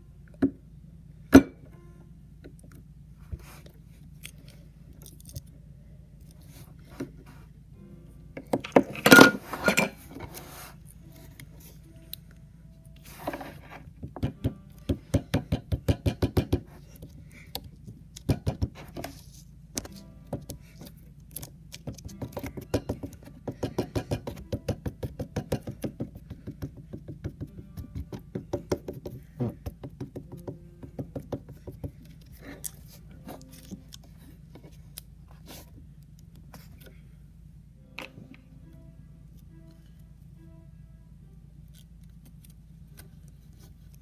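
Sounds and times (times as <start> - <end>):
steady low hum: 0.0 - 44.0
putty tapping on wooden board: 21.9 - 32.0.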